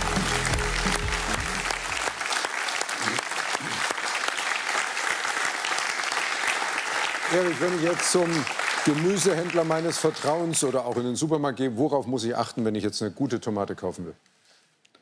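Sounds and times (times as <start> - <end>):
music jingle: 0.0 - 1.9
audience applauding: 0.0 - 11.2.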